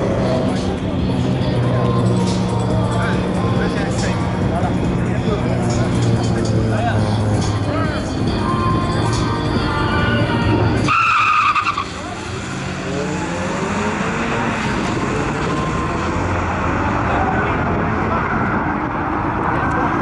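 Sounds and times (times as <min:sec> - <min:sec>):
car engines accelerating: 0:00.0 - 0:20.0
tyre squeal: 0:10.8 - 0:12.2.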